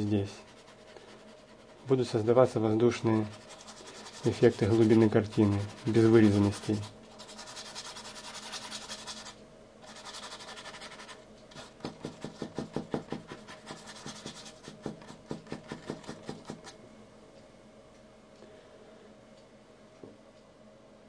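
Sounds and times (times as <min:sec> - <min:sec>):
paintbrush scrubbing on canvas: 0:00.3 - 0:16.7.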